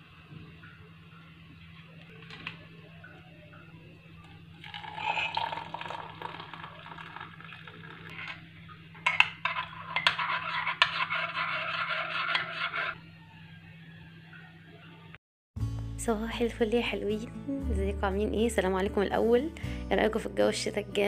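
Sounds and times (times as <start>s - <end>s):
drink pouring into mug: 4.2s - 8.5s.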